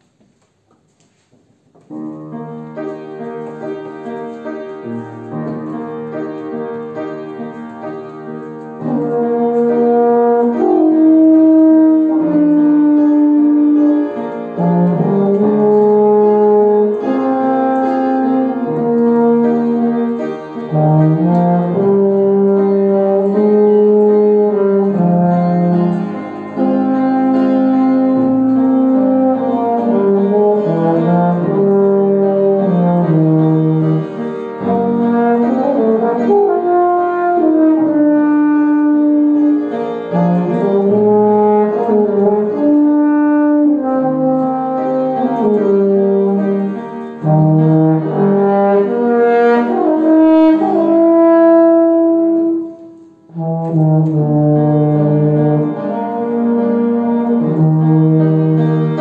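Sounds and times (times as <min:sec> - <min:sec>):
upright piano accompaniment: 0:00.0 - 0:59.0
brass horn playing slow melody: 0:02.4 - 0:59.0.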